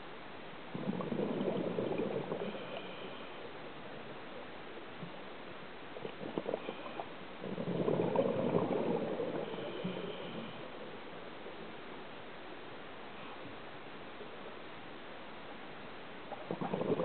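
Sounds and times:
steady underwater hiss: 0.0 - 17.0
diver's bubbles gurgling: 0.7 - 3.2, 6.0 - 10.6, 16.3 - 17.0.

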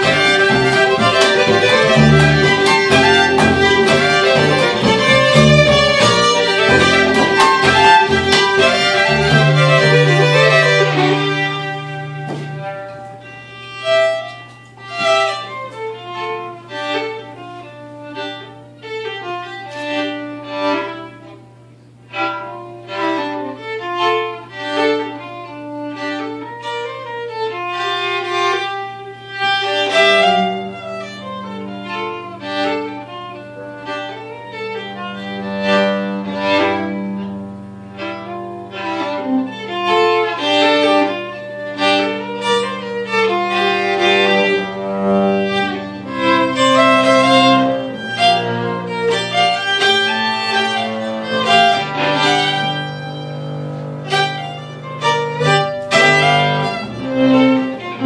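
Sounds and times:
bowed upright bass: 0.0 - 17.5, 29.3 - 58.0
fiddles playing a folk tune: 0.0 - 58.0.

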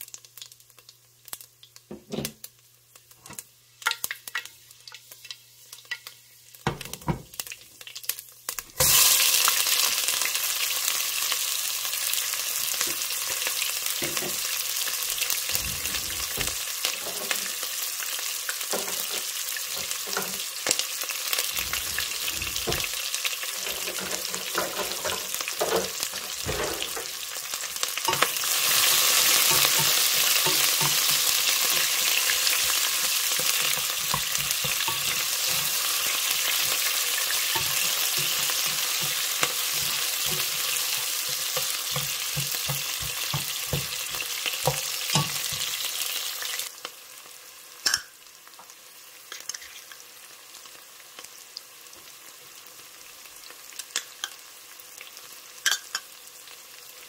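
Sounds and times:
onions sizzling in hot oil: 0.0 - 57.0
spoon scraping a pot: 21.5 - 27.1, 28.1 - 45.8.

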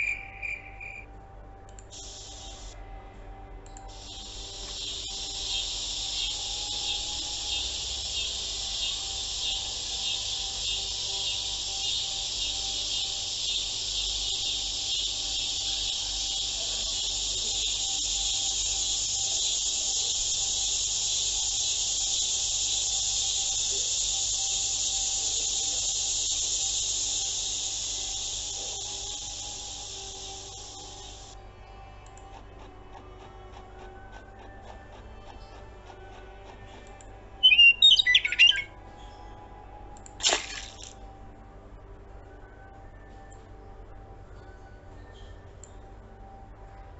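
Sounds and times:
crickets chirring: 0.0 - 1.1, 1.9 - 2.8, 3.9 - 31.6, 36.0 - 38.9
faint held music tones: 0.0 - 46.9.

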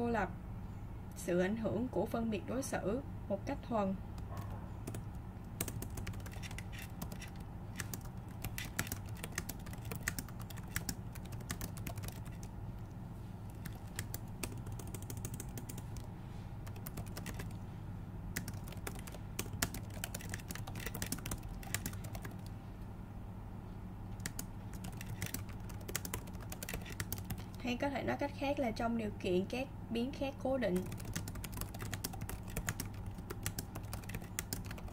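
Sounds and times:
steady low hum: 0.0 - 34.9
keyboard key clicks: 4.9 - 12.4.

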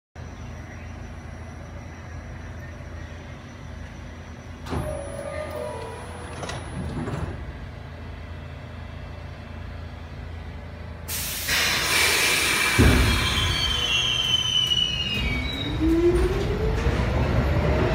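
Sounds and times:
subway train humming: 0.2 - 17.9
air brakes hissing: 11.1 - 15.6.

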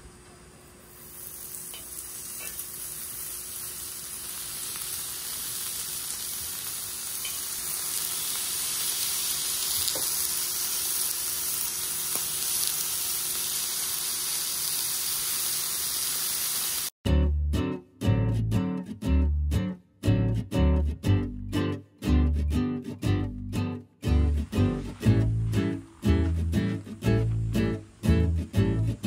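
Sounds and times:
meat sizzling on griddle: 0.7 - 17.0
acoustic guitar music: 17.1 - 29.0.

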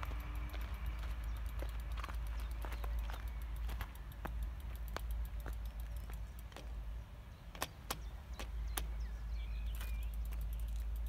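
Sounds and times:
bicycle clicks and clacks: 0.0 - 11.0.

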